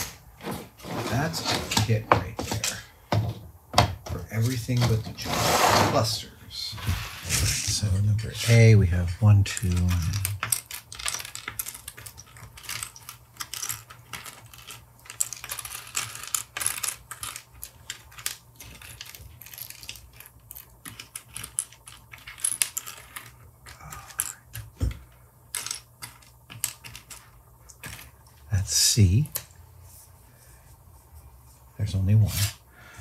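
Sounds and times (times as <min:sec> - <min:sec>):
plastic parts clicking on table: 0:09.4 - 0:28.2.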